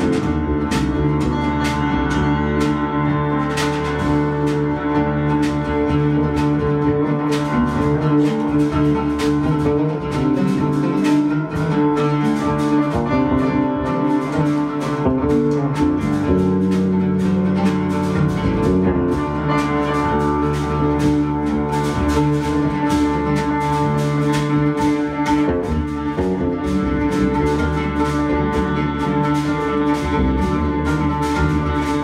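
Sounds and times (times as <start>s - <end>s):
electric bass line: 0.0s - 32.0s
live band music: 0.0s - 32.0s.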